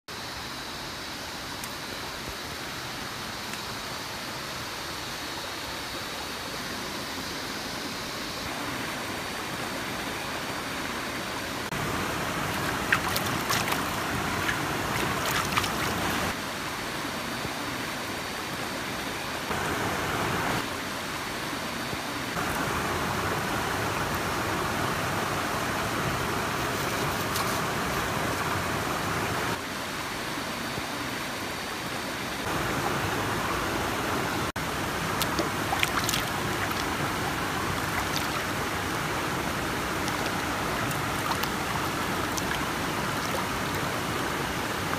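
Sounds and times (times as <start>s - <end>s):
stream running over rocks: 0.1s - 44.9s
water splashed by hand: 11.8s - 16.4s, 35.0s - 44.9s.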